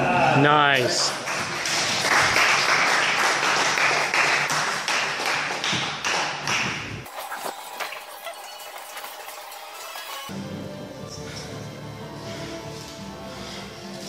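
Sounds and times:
spectators clapping: 0.8 - 10.3.

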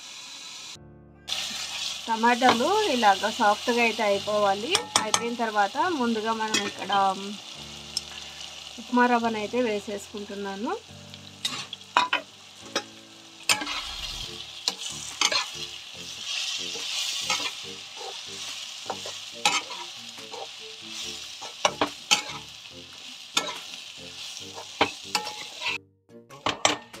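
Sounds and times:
food sizzling in a pan: 0.0 - 25.8
spatula scraping and knocking pan: 4.7 - 5.3, 13.5 - 15.6, 21.4 - 22.4, 23.4 - 23.6, 24.6 - 27.0.

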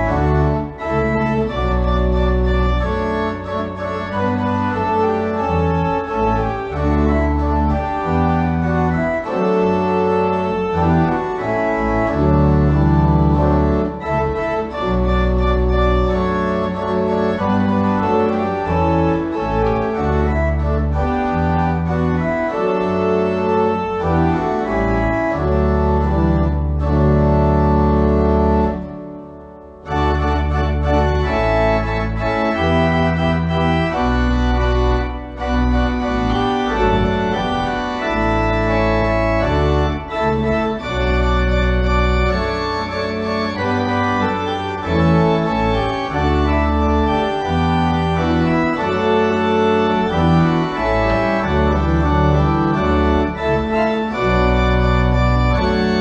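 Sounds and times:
church organ playing chords: 0.0 - 56.0.

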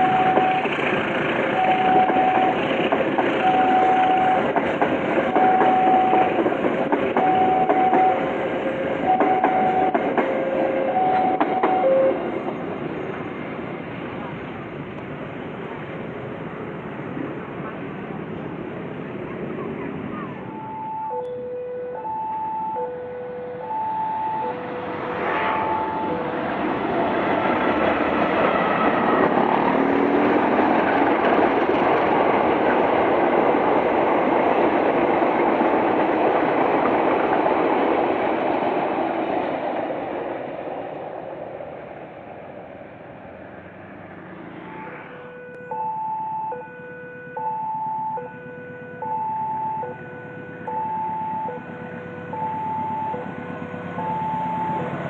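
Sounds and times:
two-tone crossing alarm: 0.0 - 0.8, 1.5 - 2.7, 3.4 - 4.6, 5.3 - 6.5, 7.1 - 12.2, 20.4 - 26.6, 44.7 - 55.0
train wheels rushing on rails: 0.0 - 20.6, 24.3 - 45.2, 51.3 - 55.0.

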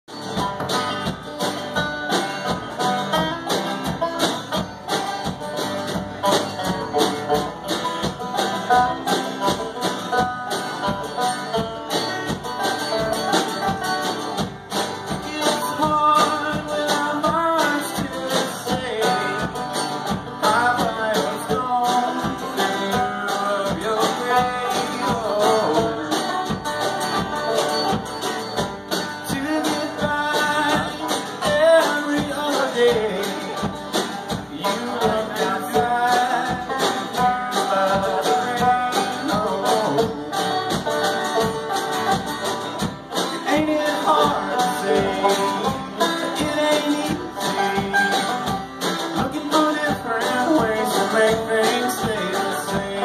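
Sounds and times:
banjo picking: 0.0 - 53.0
strummed acoustic guitar: 0.0 - 53.0
man singing: 15.0 - 19.7, 20.3 - 26.4, 29.2 - 40.5, 43.2 - 53.0.

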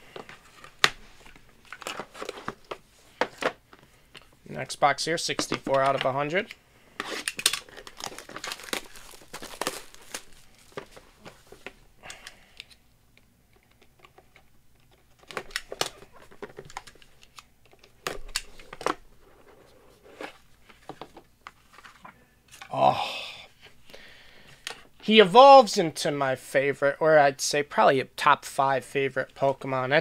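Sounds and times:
plastic shrink-wrap crinkling: 7.2 - 11.6.

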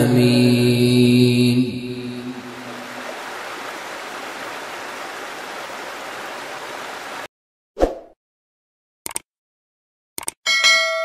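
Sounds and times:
stream rushing over rocks: 2.4 - 7.3.

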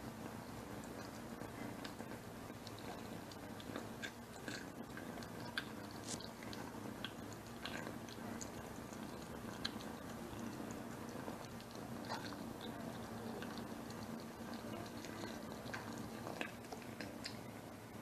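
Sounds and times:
kitten chewing wetly: 0.0 - 18.0
kitten purring: 0.8 - 18.0.

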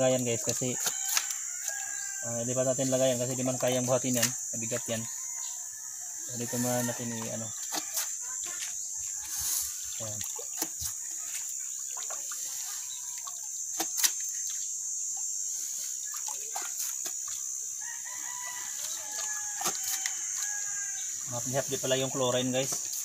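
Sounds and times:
high-pitched hiss: 0.0 - 23.0
rooster crowing: 0.8 - 2.6, 4.9 - 8.1, 17.8 - 21.2.

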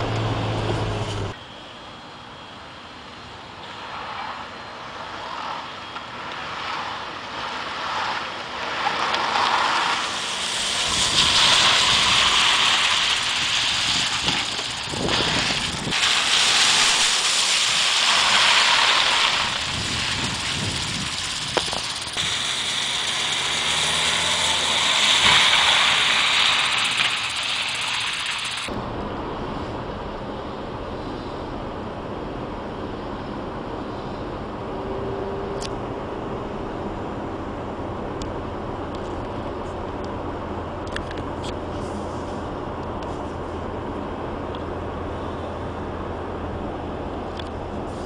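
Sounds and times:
tyres hissing through water: 6.5 - 28.7.

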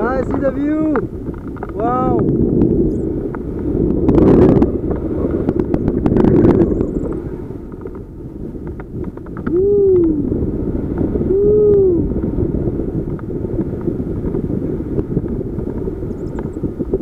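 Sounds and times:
wind buffeting microphone: 0.0 - 17.0
person calling out hooo: 9.5 - 10.3, 11.3 - 12.1.

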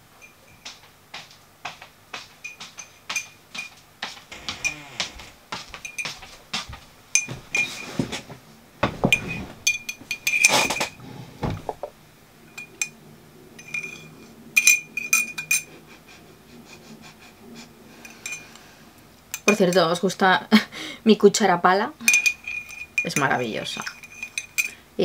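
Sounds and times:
handling noise: 0.0 - 12.0
spoon clinking in ceramic mug: 22.1 - 24.8.

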